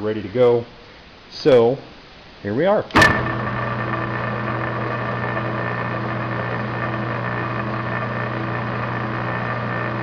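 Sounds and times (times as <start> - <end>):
metal lathe running: 3.0 - 10.0.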